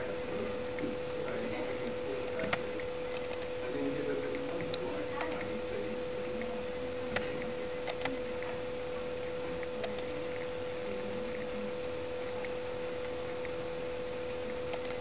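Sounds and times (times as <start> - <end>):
microphone hum and hiss: 0.0 - 15.0
computer mouse clicks: 2.4 - 3.5, 7.1 - 8.5, 9.6 - 10.2, 14.4 - 15.0.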